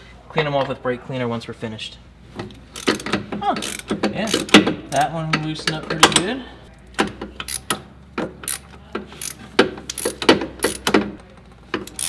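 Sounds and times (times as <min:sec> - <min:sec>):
ratchet wrench clicking on metal: 0:02.8 - 0:05.1, 0:07.4 - 0:07.8, 0:08.4 - 0:11.0, 0:11.8 - 0:12.0.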